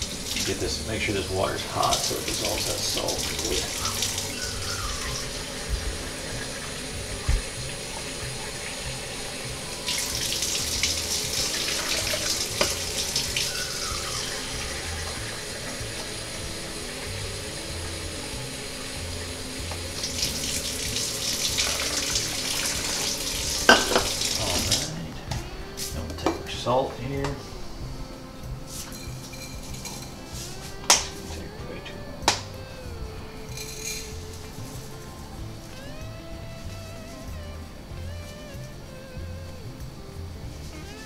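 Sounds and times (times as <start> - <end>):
faucet running into steel sink: 0.0 - 24.9.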